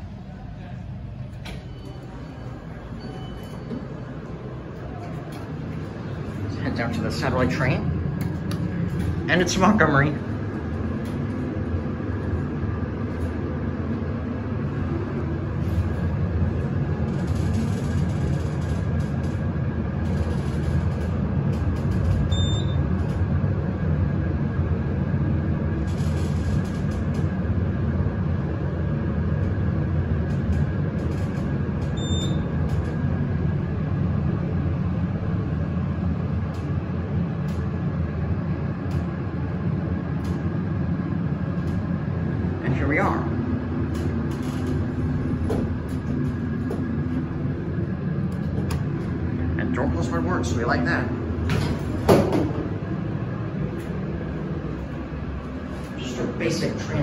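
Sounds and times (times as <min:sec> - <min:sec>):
elevator rumble and motor hum: 0:00.0 - 0:57.0
short electronic beeps: 0:01.6 - 0:03.8.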